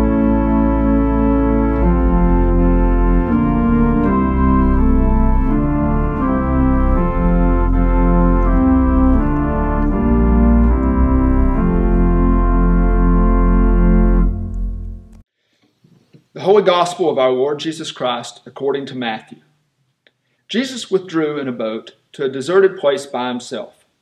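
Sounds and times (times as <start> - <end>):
church organ playing a hymn: 0.0 - 15.2.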